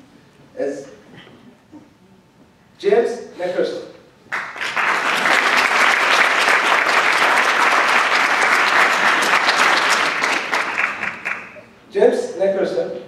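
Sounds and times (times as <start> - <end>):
audience applauding: 4.3 - 11.7.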